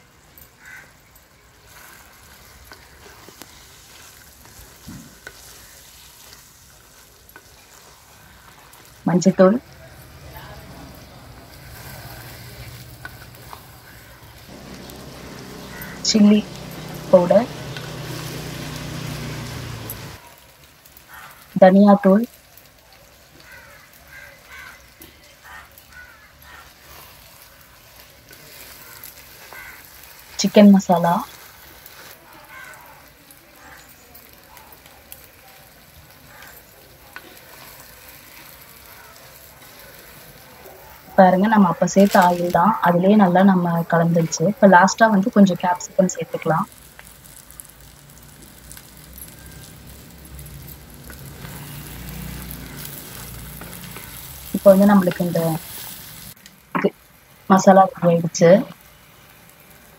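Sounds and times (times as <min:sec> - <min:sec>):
food sizzling in oil: 0:00.0 - 0:59.9
spatula scraping: 0:01.6 - 0:09.0, 0:10.0 - 0:20.2
faint voices: 0:08.0 - 0:20.2, 0:21.6 - 0:46.7.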